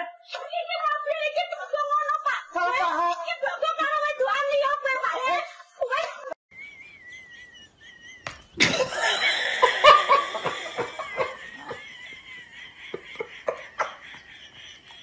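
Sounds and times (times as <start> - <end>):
person laughing: 6.9 - 15.0.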